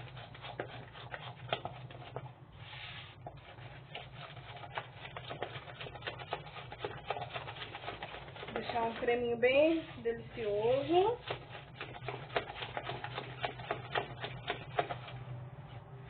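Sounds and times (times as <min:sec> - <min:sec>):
low steady hum: 0:00.0 - 0:16.0
spatula scraping hiss: 0:02.6 - 0:04.8.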